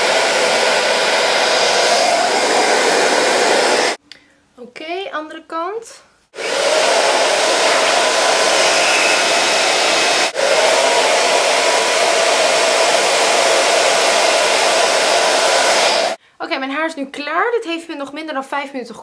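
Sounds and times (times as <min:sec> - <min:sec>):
hair dryer blowing: 0:00.0 - 0:04.0, 0:06.4 - 0:16.2.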